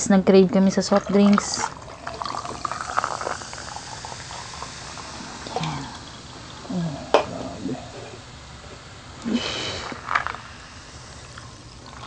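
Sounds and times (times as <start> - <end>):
fizzing hiss: 0.6 - 12.0
soft drink pouring into glass: 0.9 - 8.9.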